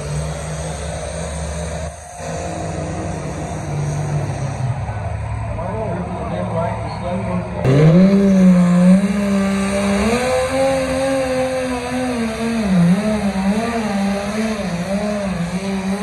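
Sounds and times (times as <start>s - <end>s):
tractor engine running hard: 0.0s - 16.0s.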